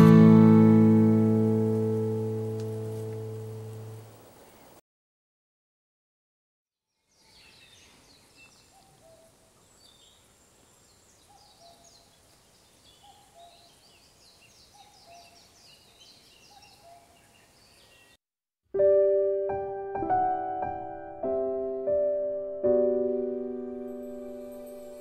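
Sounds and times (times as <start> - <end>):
small birds chirping: 6.9 - 18.2.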